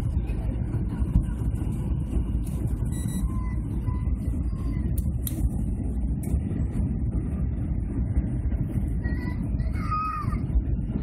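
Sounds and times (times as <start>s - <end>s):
aircraft cabin engine roar: 0.0s - 11.0s
small child crying: 9.2s - 10.4s.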